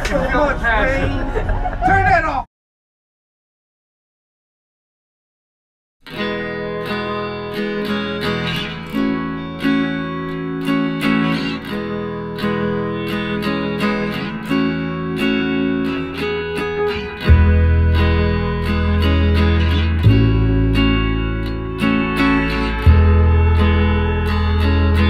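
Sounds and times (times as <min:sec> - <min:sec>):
deep bass: 0:00.0 - 0:02.4, 0:17.2 - 0:25.0
strummed acoustic guitar: 0:06.1 - 0:25.0.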